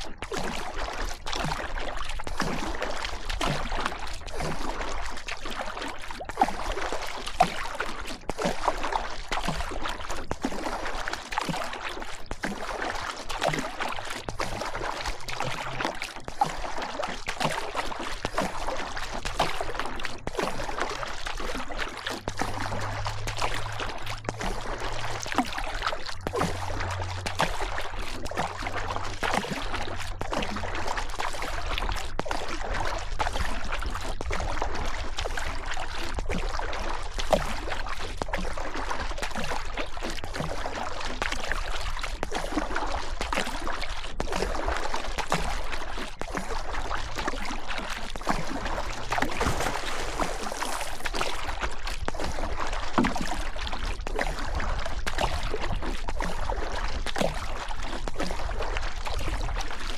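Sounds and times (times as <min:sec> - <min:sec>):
river water rushing and splashing: 0:48.5 - 0:51.4.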